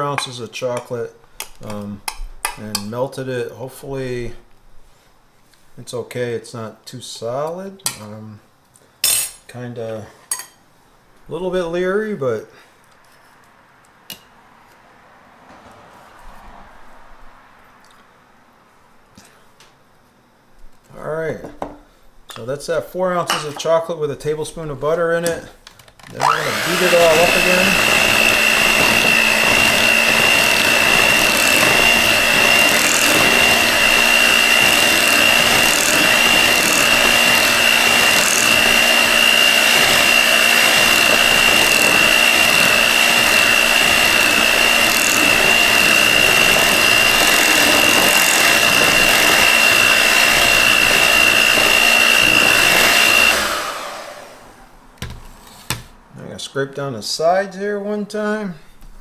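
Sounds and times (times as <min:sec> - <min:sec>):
electric hand mixer whining: 0:26.1 - 0:54.7.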